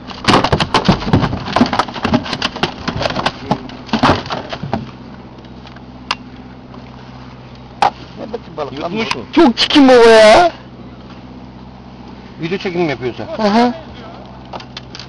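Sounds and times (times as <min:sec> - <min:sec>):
fish thrashing in boat: 0:00.0 - 0:05.4
outboard motor idling: 0:00.0 - 0:15.0.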